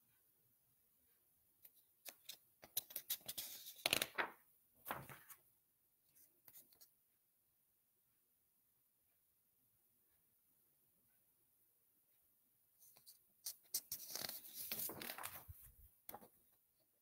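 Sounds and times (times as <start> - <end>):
paper rustling: 2.0 - 5.4, 12.9 - 16.4.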